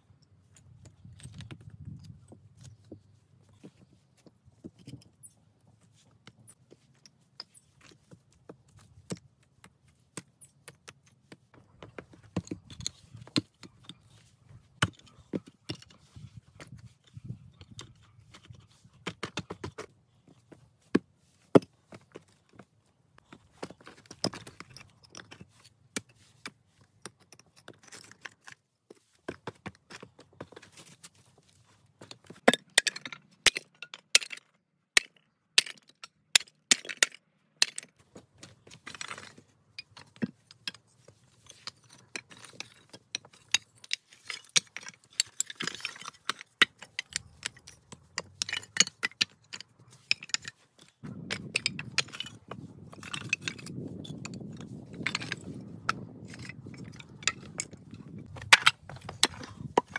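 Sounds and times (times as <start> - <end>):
tile pieces and stones clinking: 38.6 - 59.9.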